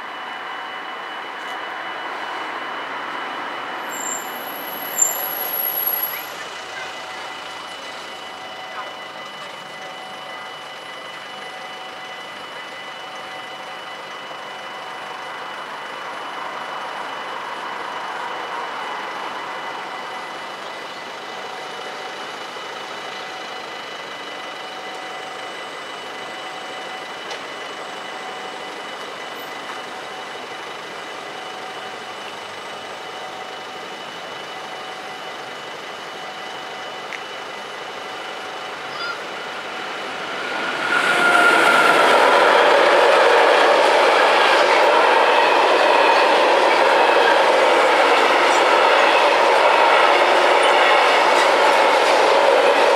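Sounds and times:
passing road vehicles: 0:38.9 - 0:45.7.

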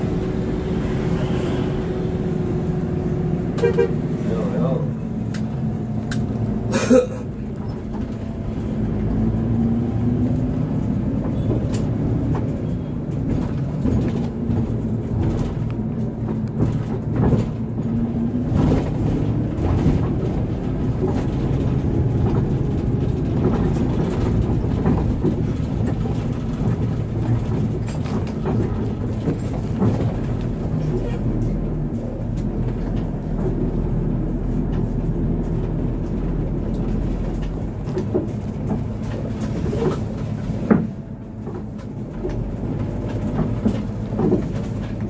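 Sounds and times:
bus diesel engine drone: 0:00.0 - 0:45.0
knocks and rattles: 0:10.1 - 0:45.0.

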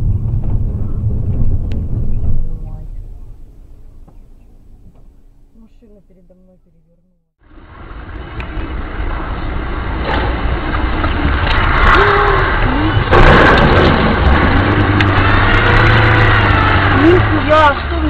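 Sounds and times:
car engine and road noise: 0:00.0 - 0:18.0
loud rush of noise: 0:07.4 - 0:18.0.

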